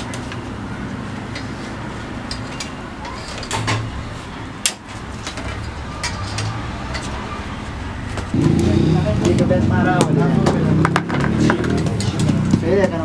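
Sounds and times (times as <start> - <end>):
background din: 2.4 - 12.7.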